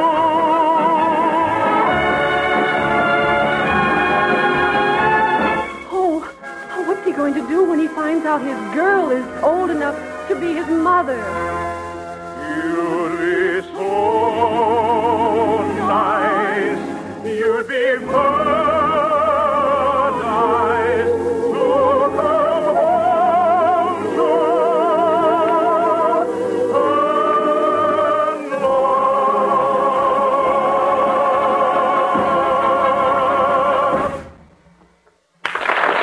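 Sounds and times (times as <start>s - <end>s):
orchestral accompaniment: 0.0s - 34.6s
singer with wide vibrato: 12.4s - 34.2s.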